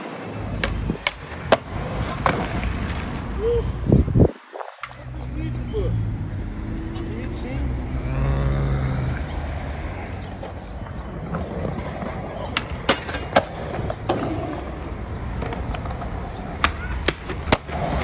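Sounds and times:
skateboard clacking on ground: 0.0s - 3.2s, 4.7s - 5.2s, 10.0s - 18.0s
skateboard wheels rolling on concrete: 0.0s - 18.0s
skateboard sliding on metal rail: 12.6s - 14.8s.

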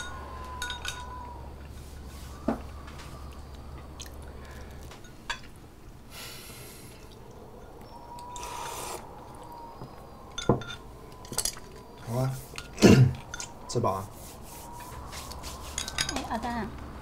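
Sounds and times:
chewing: 0.1s - 5.2s, 11.1s - 13.6s
hissing sips from bowl: 8.3s - 9.1s.

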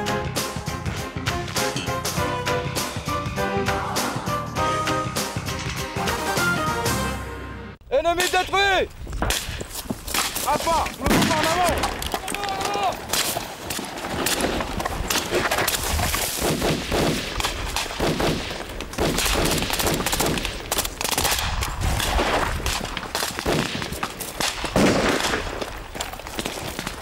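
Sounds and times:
rifle gunfire: 11.1s - 12.1s, 16.4s - 25.7s.

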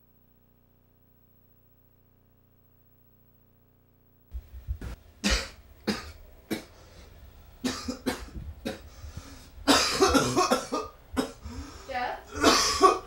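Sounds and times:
person coughing: 5.2s - 6.8s, 7.6s - 8.9s, 9.7s - 11.6s, 12.3s - 13.0s.

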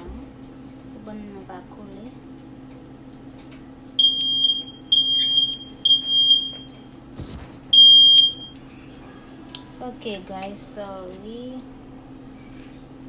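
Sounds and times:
smoke alarm beeps: 4.0s - 6.8s, 7.7s - 8.6s.

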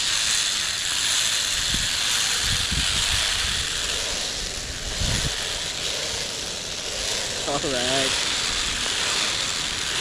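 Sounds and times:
pulleys rolling on steel cable: 0.0s - 10.0s
wind on microphone: 1.3s - 7.4s.

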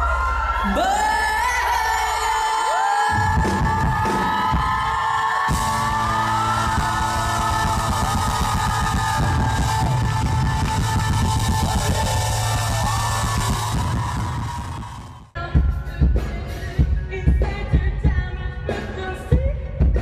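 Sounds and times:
rock band playing: 3.3s - 17.6s.

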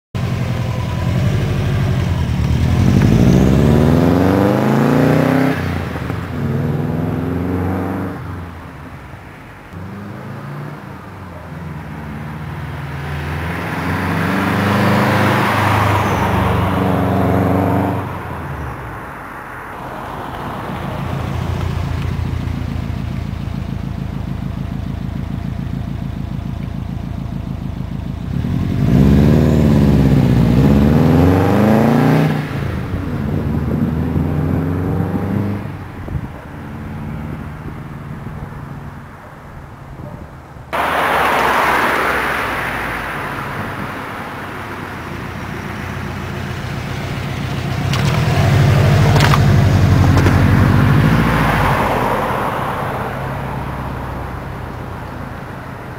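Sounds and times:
car engine revving and idling: 0.2s - 9.0s, 20.1s - 40.1s, 40.7s - 55.9s.

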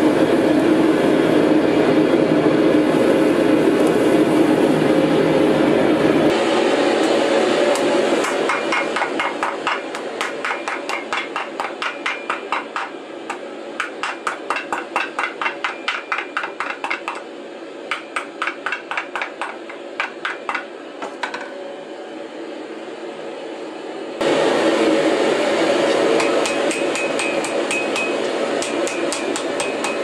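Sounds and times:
hammer striking steel on anvil: 7.7s - 17.3s, 17.9s - 21.6s, 25.9s - 30.0s.

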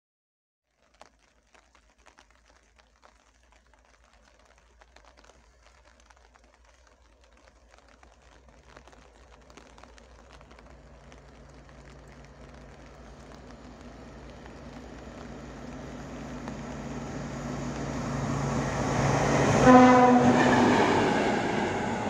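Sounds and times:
diesel locomotive engine drone: 11.0s - 22.0s.

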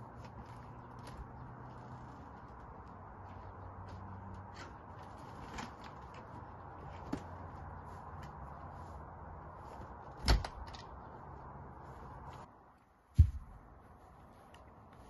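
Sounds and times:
steady low hum: 11.1s - 14.5s.

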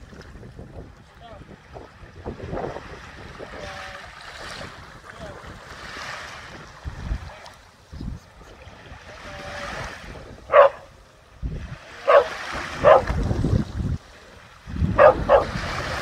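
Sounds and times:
gentle surf: 0.0s - 16.0s
wind rumbling on microphone: 0.0s - 16.0s
dog barking: 10.5s - 10.9s, 12.0s - 13.2s, 15.0s - 15.6s.

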